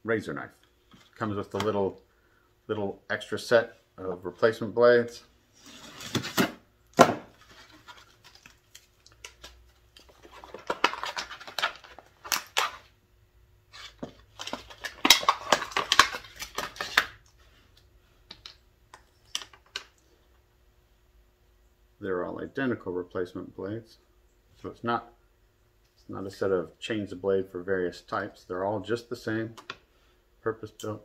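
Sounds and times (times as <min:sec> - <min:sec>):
plastic packaging crinkling: 0:07.3 - 0:12.9, 0:13.7 - 0:17.3.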